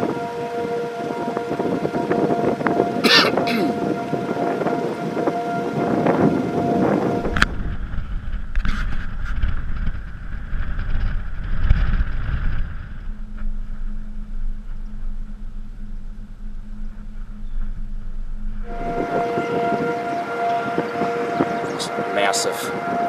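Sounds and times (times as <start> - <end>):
wind rumbling on microphone: 0.0 - 23.0
steady low hum: 6.4 - 22.0.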